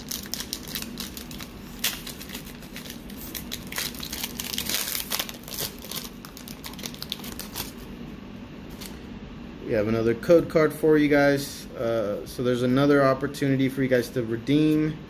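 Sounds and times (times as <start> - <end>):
foil wrapper crinkling and tearing: 0.0 - 7.8.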